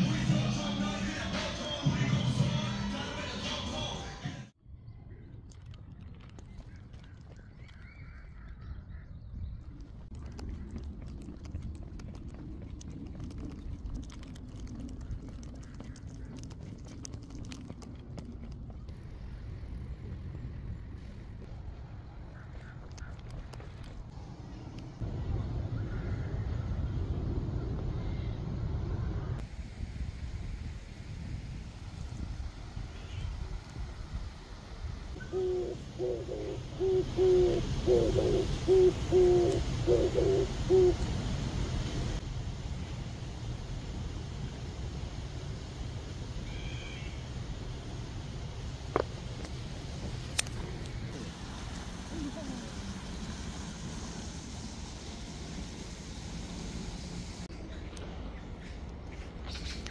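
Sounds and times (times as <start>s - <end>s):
steady low rumble: 4.6s - 59.9s
footsteps on park path: 20.5s - 24.8s
dove cooing: 35.2s - 41.1s, 51.1s - 53.2s.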